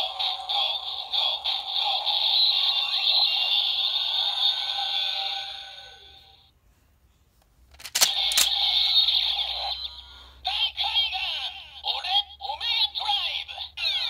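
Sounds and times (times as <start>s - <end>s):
recorded voice and song: 0.0s - 6.1s.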